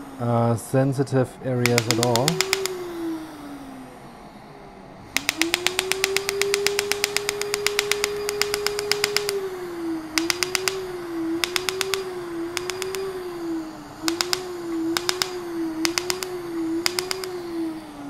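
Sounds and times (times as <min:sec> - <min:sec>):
laser rapid sharp clicks: 0:01.6 - 0:03.0, 0:05.2 - 0:09.4, 0:10.2 - 0:13.2, 0:14.0 - 0:17.4.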